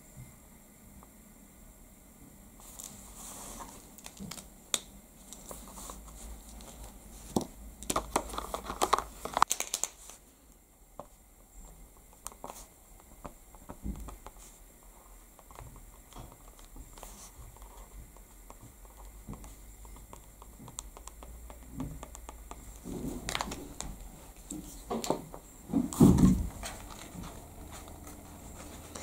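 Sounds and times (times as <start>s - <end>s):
rapid clicking and crinkling: 2.6s - 29.0s
card and pens clicking: 15.4s - 22.6s.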